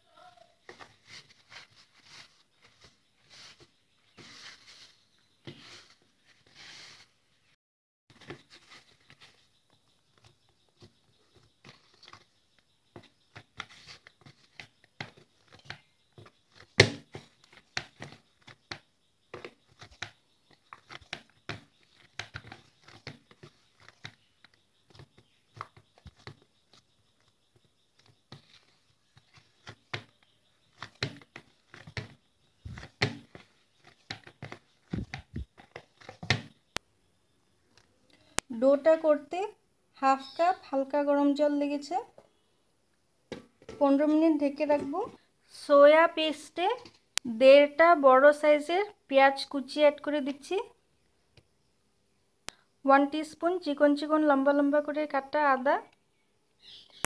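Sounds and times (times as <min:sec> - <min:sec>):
hand kneading dough in bowl: 0:08.1 - 0:36.6
dough slapping against bowl: 0:27.6 - 0:36.6.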